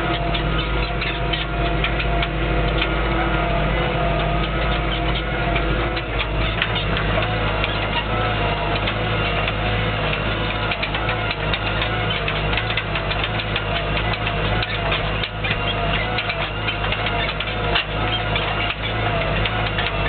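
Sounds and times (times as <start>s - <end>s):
tractor diesel engine running: 0.0s - 20.0s
rattling clicks: 4.4s - 20.0s.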